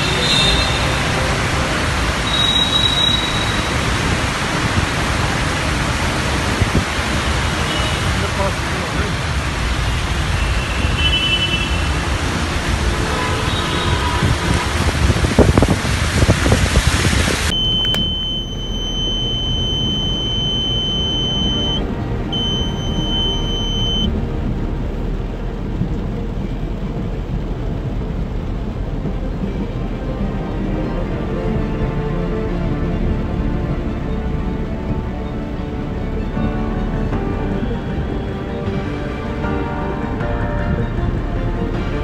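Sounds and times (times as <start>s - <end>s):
car driving through floodwater: 0.0s - 42.0s
high-pitched electronic beep: 17.5s - 24.1s.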